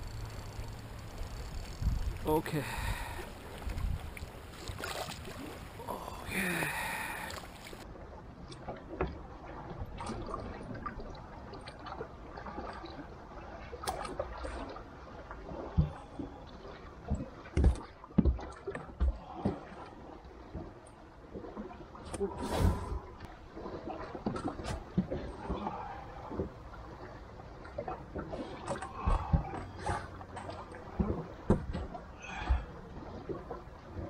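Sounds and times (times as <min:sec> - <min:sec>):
water: 0:00.0 - 0:34.0
wind: 0:00.0 - 0:34.0.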